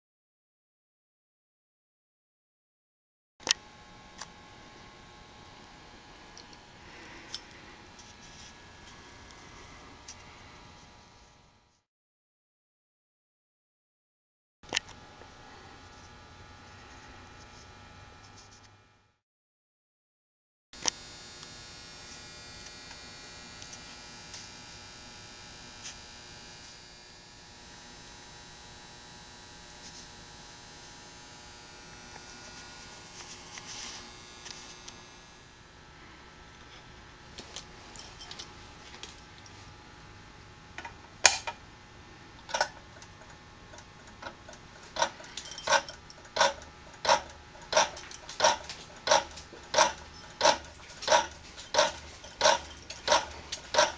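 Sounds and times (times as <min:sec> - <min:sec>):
faint steady hum: 0:20.8 - 0:53.9.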